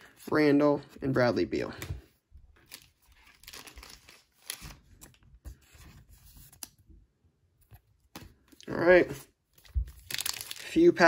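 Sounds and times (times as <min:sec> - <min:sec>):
plastic sleeve crinkling: 0:02.6 - 0:05.2, 0:09.6 - 0:11.0.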